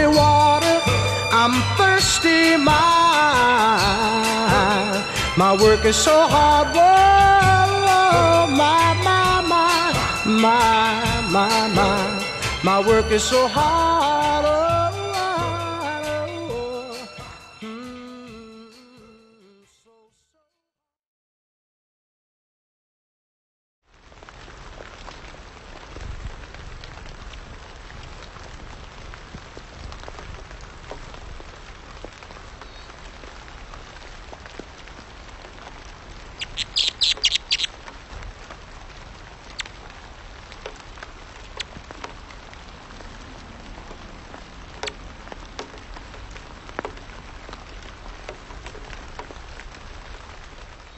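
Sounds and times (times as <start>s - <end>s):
hummingbird high chips: 36.4s - 37.7s
low outdoor rumble: 37.7s - 50.8s.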